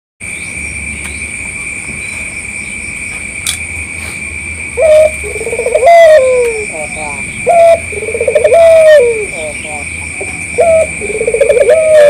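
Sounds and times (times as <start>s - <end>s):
insects droning: 0.2s - 12.0s
dove cooing: 4.8s - 12.0s.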